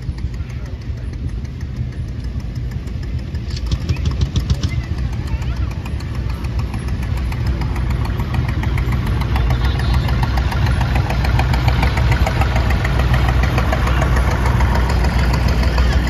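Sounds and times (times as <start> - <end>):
tractor engine rumbling: 0.0 - 16.0.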